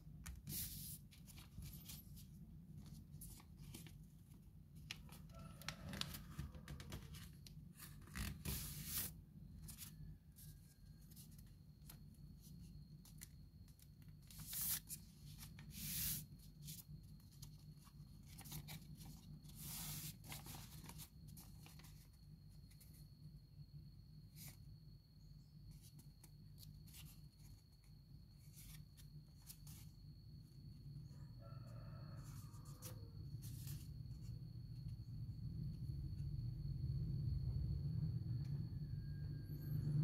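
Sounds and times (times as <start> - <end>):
paper rustling and crinkling: 0.4 - 10.0, 13.0 - 22.9.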